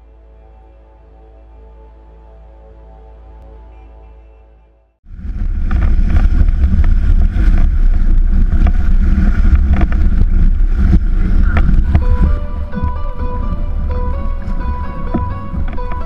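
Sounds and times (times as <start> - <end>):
music: 0.0 - 5.0, 11.8 - 16.0
wind buffeting microphone: 5.0 - 16.0
water splashing against hull: 5.1 - 16.0.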